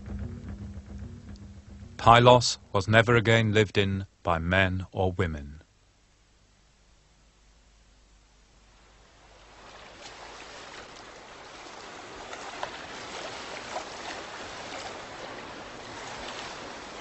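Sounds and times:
water rushing with splashes: 8.8s - 17.0s.

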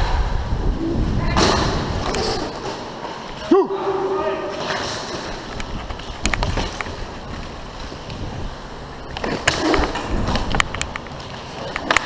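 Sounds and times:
wind rumble on microphone: 0.0s - 2.5s, 5.6s - 8.7s
skate wheels rolling on plastic floor: 4.5s - 12.0s.

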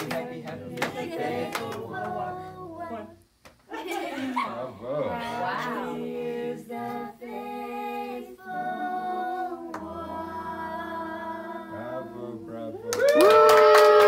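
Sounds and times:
hand clapping: 0.0s - 2.1s, 12.9s - 14.0s
women singing a cappella: 0.0s - 12.5s.

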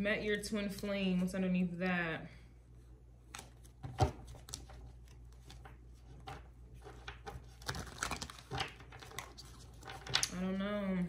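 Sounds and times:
low steady hum: 0.0s - 11.0s
cards rustling and clicking: 3.2s - 10.4s.

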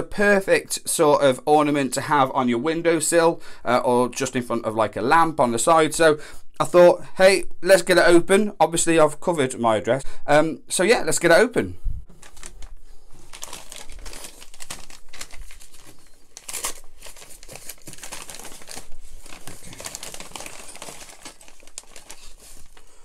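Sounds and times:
paper envelope tearing and crinkling: 12.1s - 23.0s.

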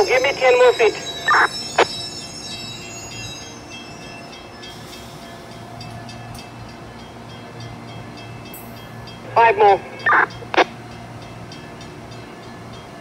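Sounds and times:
train hum and rumble: 0.0s - 13.0s.

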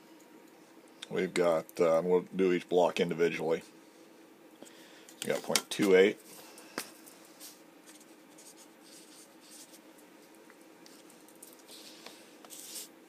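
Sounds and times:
marker scratching on paper: 7.9s - 9.8s, 12.5s - 12.9s.

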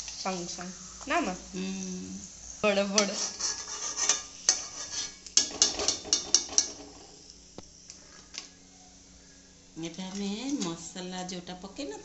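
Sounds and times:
hot oil sizzling in wok: 0.0s - 12.0s
metal skimmer scraping pan: 3.0s - 7.2s.

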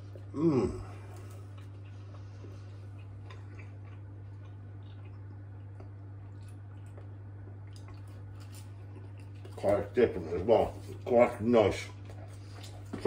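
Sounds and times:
low electrical hum: 0.0s - 13.0s
chewing with wet mouth clicks: 1.1s - 10.0s.

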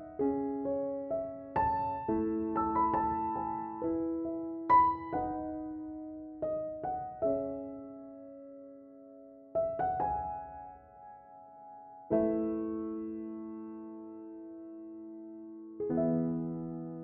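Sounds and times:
slow soft piano: 0.0s - 17.0s.

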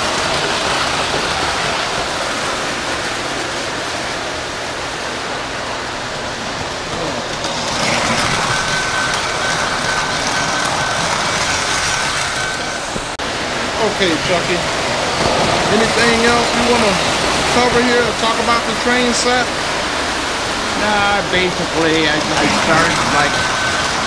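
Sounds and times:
model train wheels clattering on rails: 6.5s - 13.2s, 20.8s - 24.0s
thin high tone: 20.7s - 24.0s.

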